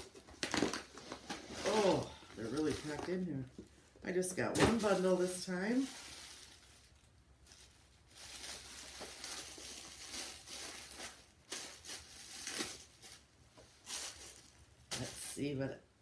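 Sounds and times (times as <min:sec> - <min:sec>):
plastic wrapping rustling: 0:00.0 - 0:15.6.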